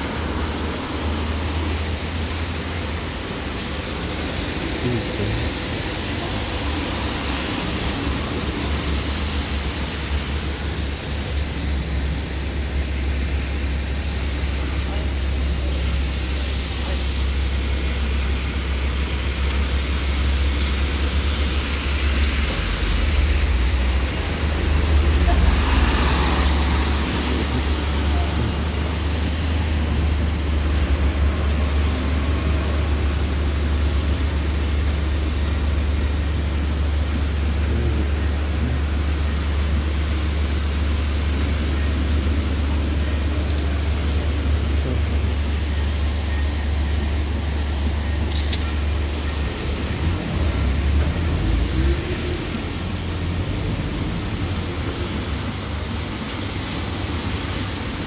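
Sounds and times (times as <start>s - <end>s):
buses and cars passing on wet road: 0.0s - 58.0s.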